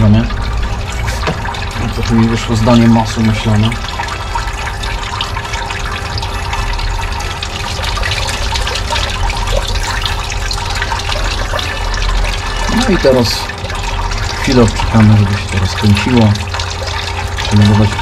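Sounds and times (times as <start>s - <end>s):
electric pump humming: 0.0s - 18.0s
water circulating and splashing: 0.0s - 18.0s.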